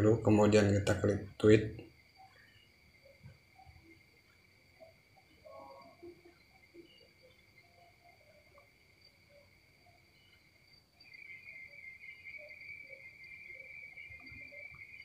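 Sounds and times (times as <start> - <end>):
faint high-pitched trill: 4.8 - 8.7.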